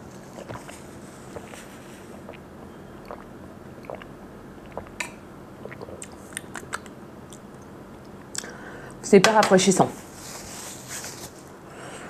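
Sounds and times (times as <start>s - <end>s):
person sipping and swallowing: 0.2s - 8.6s
wet mouth clicks and lip smacks: 3.8s - 8.5s.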